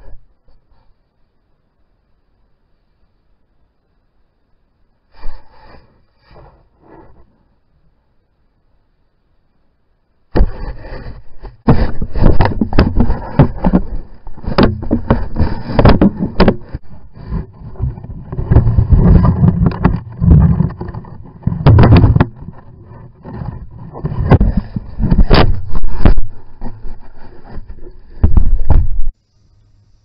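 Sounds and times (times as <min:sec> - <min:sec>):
scraping and knocking on camera: 0:10.3 - 0:29.2.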